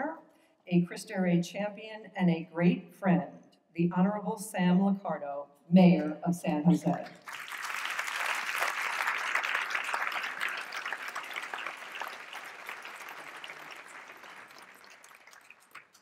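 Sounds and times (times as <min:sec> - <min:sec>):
audience applauding: 0:06.9 - 0:16.0.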